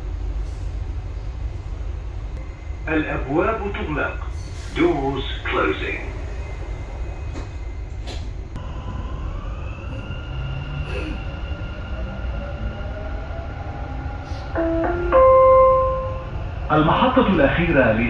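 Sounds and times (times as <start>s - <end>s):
train rumble and motor whine: 0.0s - 18.0s
three-note chime: 14.6s - 16.3s.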